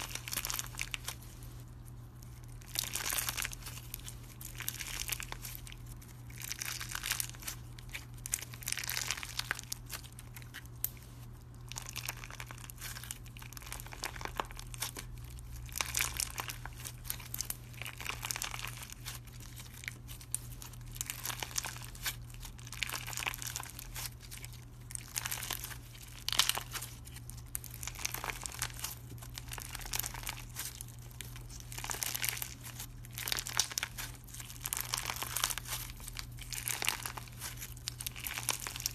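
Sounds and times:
crackly slime squishing: 0.0 - 38.9.

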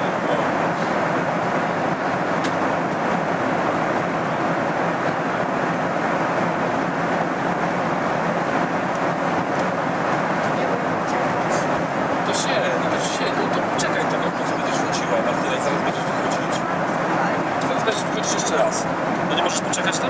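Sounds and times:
airliner cabin roar: 0.0 - 20.0.

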